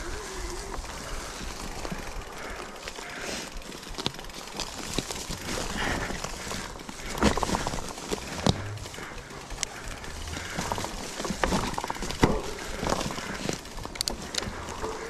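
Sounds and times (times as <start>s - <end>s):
bike rattling and knocking: 0.0s - 15.0s
bike tyres rolling on ground: 0.0s - 15.0s.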